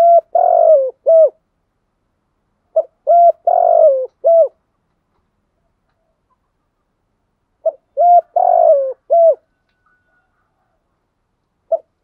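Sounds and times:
dove cooing: 0:00.0 - 0:01.4, 0:02.7 - 0:04.6, 0:07.6 - 0:10.8, 0:11.7 - 0:12.0.

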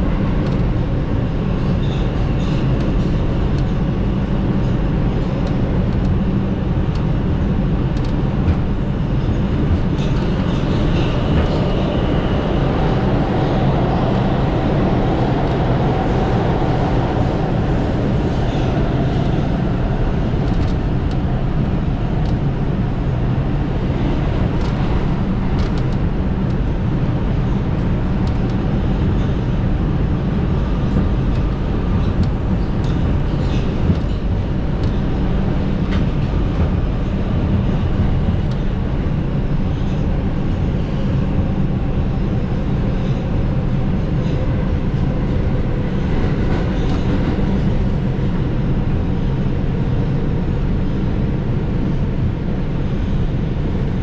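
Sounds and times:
subway train wheels rumbling on rails: 0:00.0 - 0:54.0.

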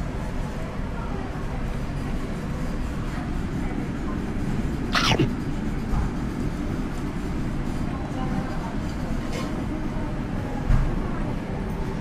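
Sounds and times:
low restaurant room rumble: 0:00.0 - 0:12.0
noodles slurped: 0:05.0 - 0:05.3.

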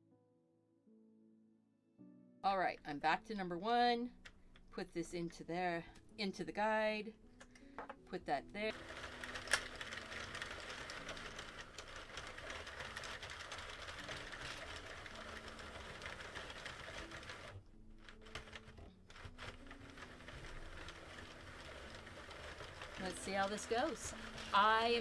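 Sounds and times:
knitting machine clattering: 0:08.7 - 0:25.0.

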